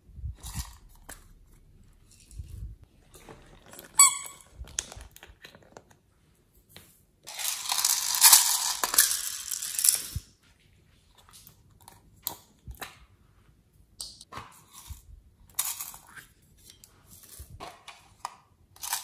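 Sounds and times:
plastic packaging crinkling: 3.1 - 6.0, 7.3 - 10.2
plastic toy squeak: 3.9 - 4.6.

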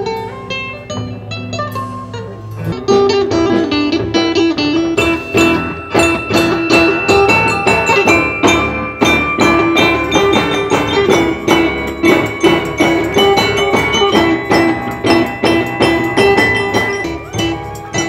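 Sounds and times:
xylophone ensemble music: 5.0 - 18.0.

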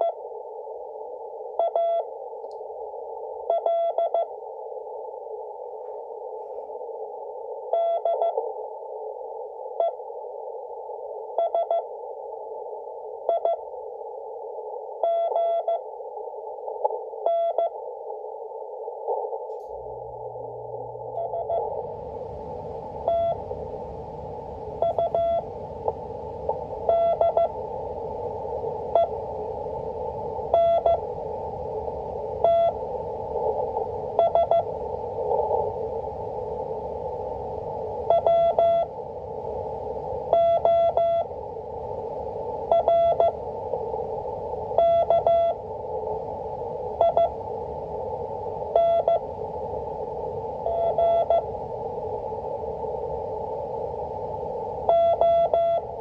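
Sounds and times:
radio band noise hiss: 0.0 - 56.0
morse code tone: 23.0 - 23.4, 24.8 - 25.5, 26.9 - 27.6, 30.5 - 31.0, 32.4 - 32.8, 34.2 - 34.7, 38.1 - 38.9, 40.3 - 41.3, 42.7 - 43.4, 44.8 - 45.6, 47.0 - 47.4, 48.8 - 49.2, 50.7 - 51.4, 54.9 - 55.8.

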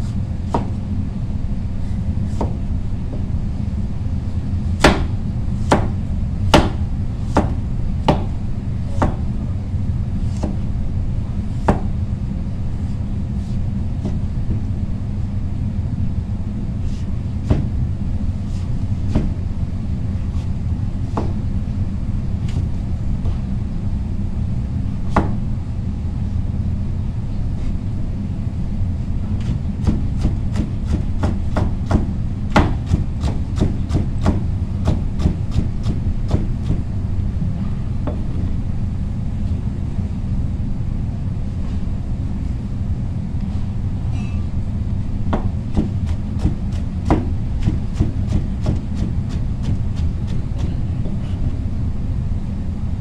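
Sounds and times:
knife chopping on cutting board: 4.8 - 8.3, 10.3 - 10.6, 29.4 - 36.8, 45.3 - 50.8.

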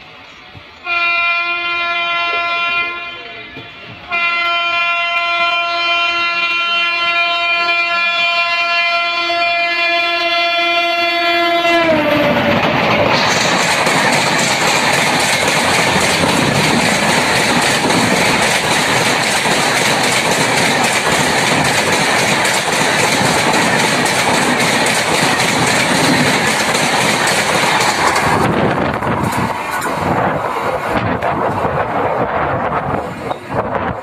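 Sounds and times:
train horn: 0.8 - 12.5
train wheels and air rushing: 11.9 - 34.0.

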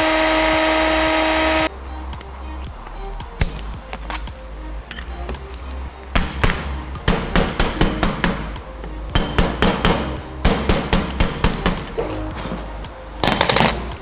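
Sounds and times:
hammer tapping metal: 6.2 - 13.7.

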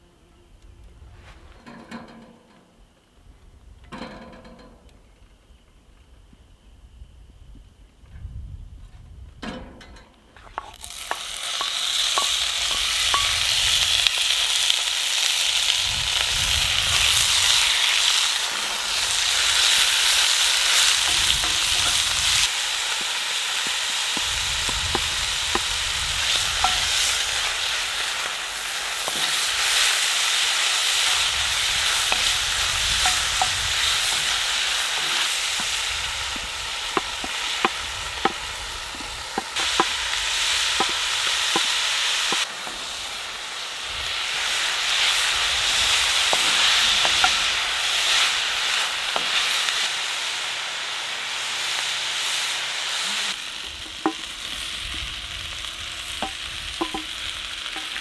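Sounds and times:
beef sizzling in a skillet: 10.6 - 58.0
sharp pops and ticks: 19.0 - 27.6, 28.6 - 42.8, 56.2 - 58.0.

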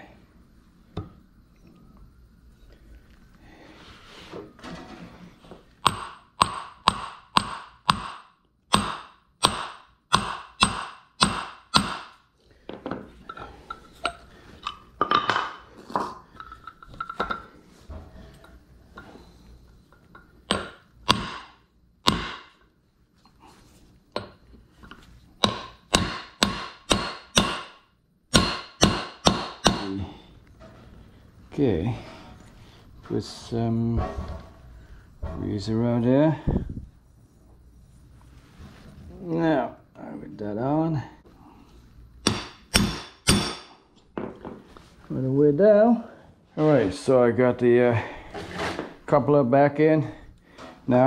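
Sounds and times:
hammer tapping on metal: 5.8 - 12.2, 20.5 - 22.6, 25.4 - 30.0, 42.2 - 43.7.

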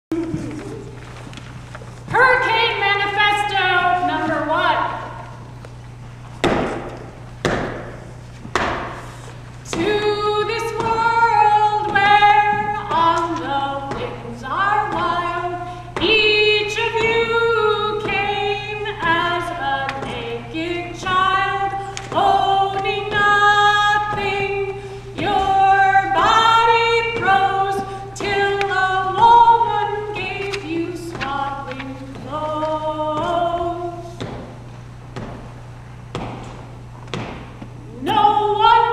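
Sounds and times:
steady low hum: 0.1 - 38.9
woman singing unaccompanied: 2.1 - 5.3, 9.6 - 34.3, 37.8 - 38.9.

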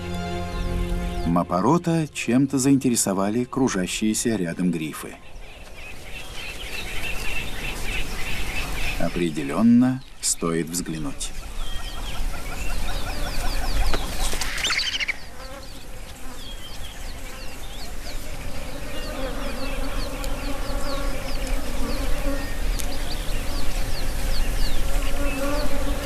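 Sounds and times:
flies buzzing: 0.0 - 3.3, 5.6 - 9.8, 10.8 - 26.0.

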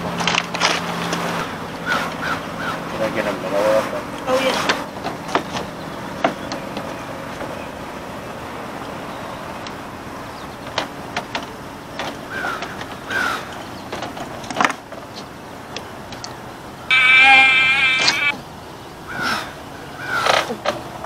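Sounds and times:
flying insect buzzing: 16.9 - 18.3
short chirps: 16.9 - 18.3.

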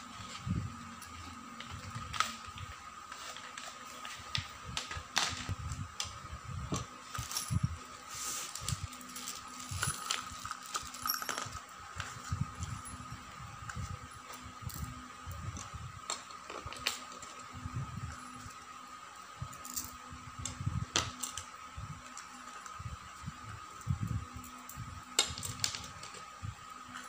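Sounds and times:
faint steady hum: 0.0 - 27.0
bolts and washers clinking: 9.2 - 11.6.

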